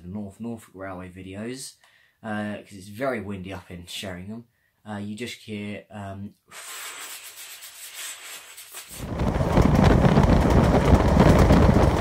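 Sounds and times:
wind buffeting microphone: 9.0 - 12.0.

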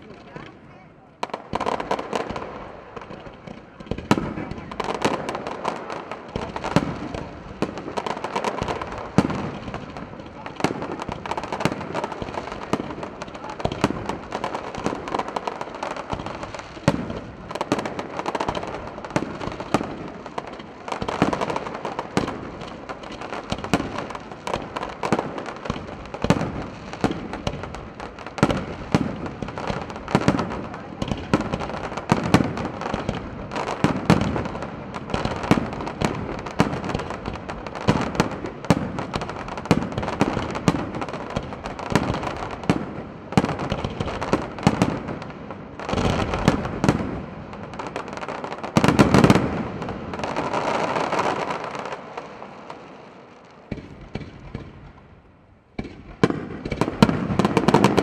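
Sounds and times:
fireworks bangs and crackling: 0.0 - 58.0
heavy firework booms: 1.2 - 51.8, 55.8 - 58.0.

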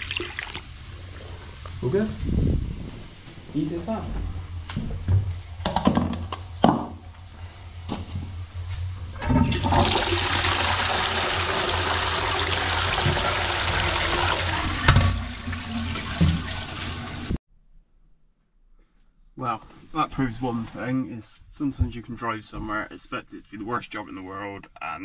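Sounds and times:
toilet flushing: 0.0 - 2.2, 5.5 - 17.4.

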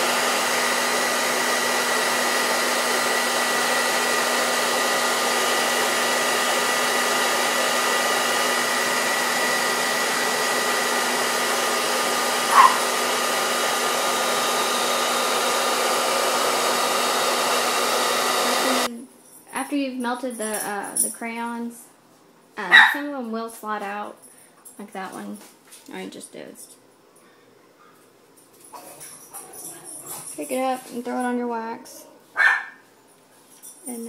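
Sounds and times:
hair dryer blowing air: 0.0 - 18.9.

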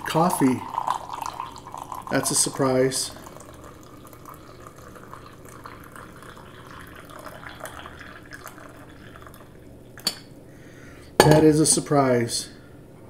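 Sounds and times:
liquid pouring into a mug: 0.0 - 10.3.

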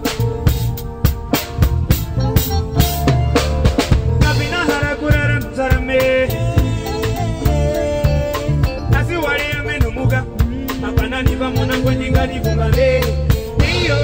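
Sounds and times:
drum kit beat: 0.0 - 14.0
keyboard: 0.0 - 14.0
live band playing: 0.0 - 14.0
man singing: 4.2 - 14.0.

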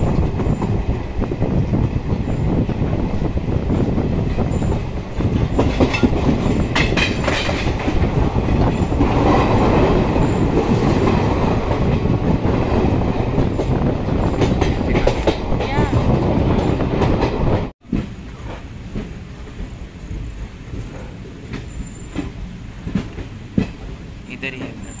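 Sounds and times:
clickety-clack over rail joints: 0.0 - 25.0
train wheels rumbling on rails: 0.0 - 25.0.

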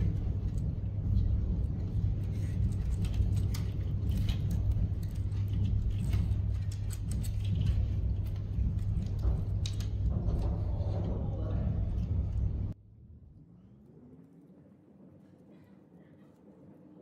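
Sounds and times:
wires clicking and rustling: 0.0 - 12.8
steady low hum: 0.0 - 17.0.

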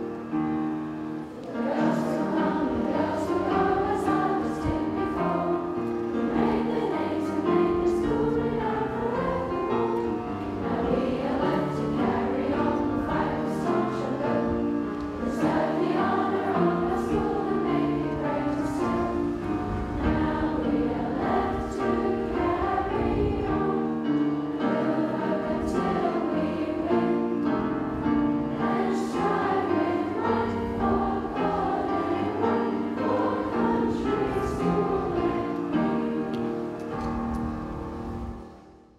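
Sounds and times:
girls choir singing: 0.0 - 38.4.

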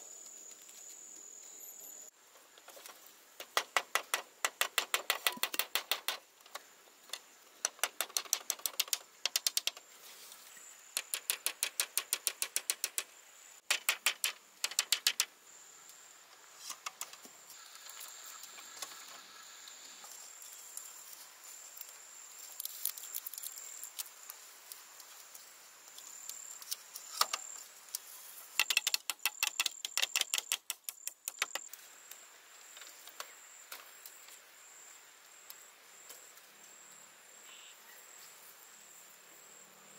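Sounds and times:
high insect drone: 8.4 - 39.9.

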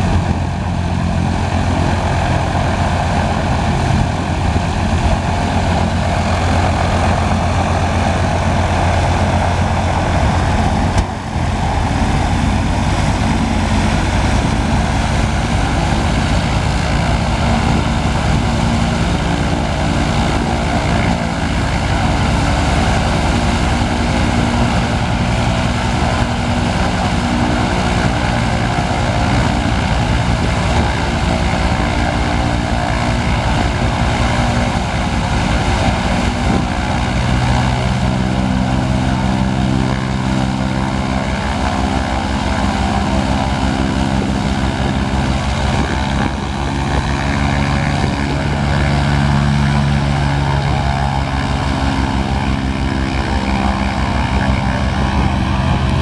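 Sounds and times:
radial aircraft engine running: 0.0 - 56.0.

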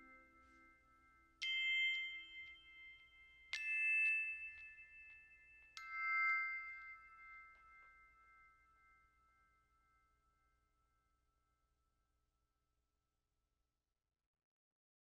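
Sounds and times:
bell-like struck notes: 0.0 - 10.4.

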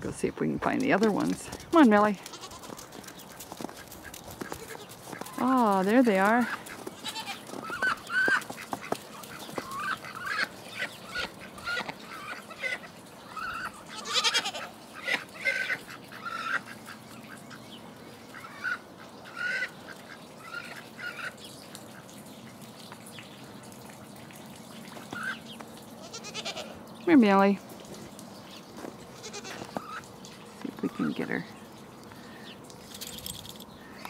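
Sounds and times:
ducks quacking: 6.1 - 21.4.

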